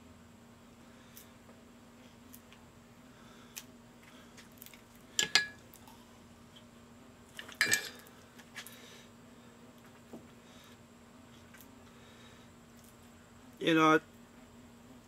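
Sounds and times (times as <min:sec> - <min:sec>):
metal clinking against glass: 0:05.2 - 0:05.6, 0:07.6 - 0:08.0.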